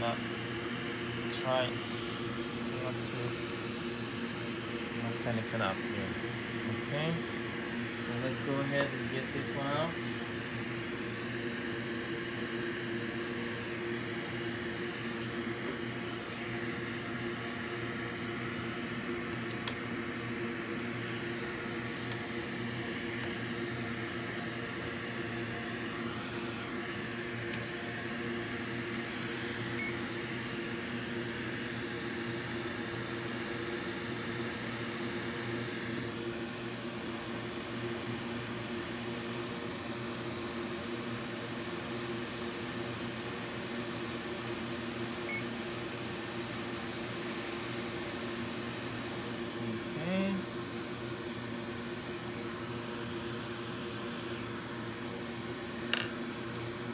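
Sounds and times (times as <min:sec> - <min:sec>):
hot air station blowing: 0:00.0 - 0:37.7.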